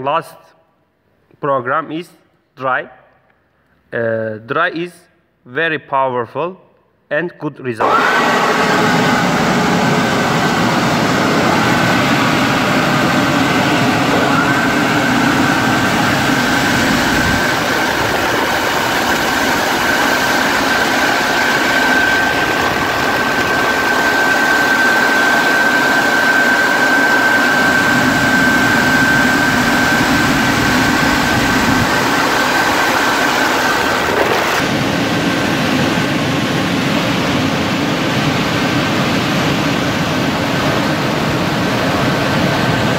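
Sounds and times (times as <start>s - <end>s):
drying blowers rushing air: 7.8s - 42.9s
high whine: 7.8s - 42.9s.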